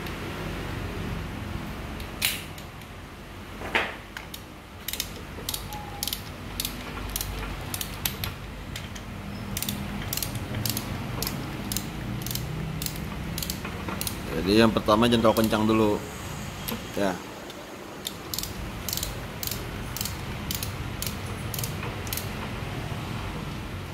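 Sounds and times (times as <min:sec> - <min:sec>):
torque wrench ratchet clicking: 0:04.3 - 0:08.3, 0:09.6 - 0:14.3, 0:18.0 - 0:22.3.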